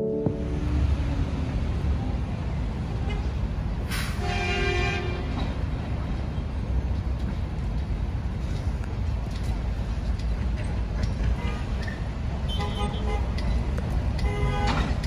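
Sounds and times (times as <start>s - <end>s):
street traffic rumble: 0.0s - 15.0s
vehicle horn: 4.2s - 5.3s.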